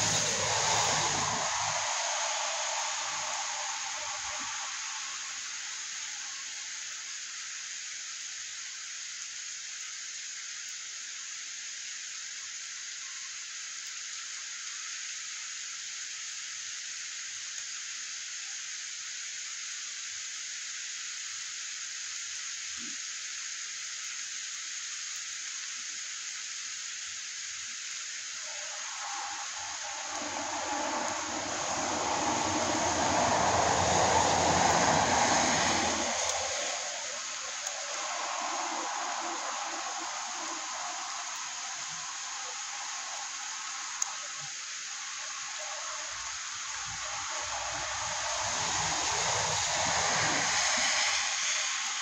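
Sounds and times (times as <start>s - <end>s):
vehicle passing: 0.0s - 4.8s, 28.5s - 41.2s, 47.1s - 52.0s
rain on a wet street: 0.0s - 7.1s, 27.5s - 52.0s.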